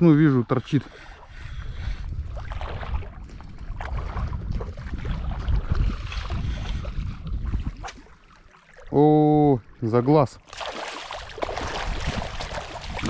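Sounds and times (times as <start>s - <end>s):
wind buffeting microphone: 0.0s - 8.2s, 11.2s - 13.0s
fish splashing at water surface: 10.5s - 13.0s.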